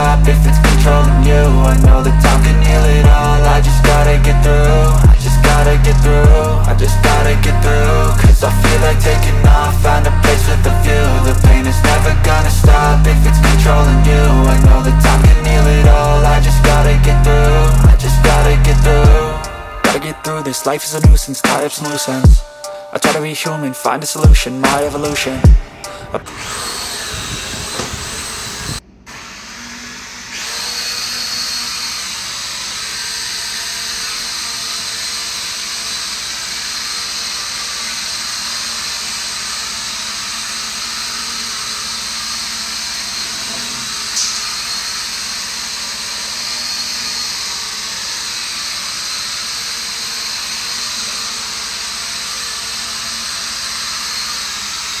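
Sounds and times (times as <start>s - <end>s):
toy drone motors whirring: 24.2s - 55.0s.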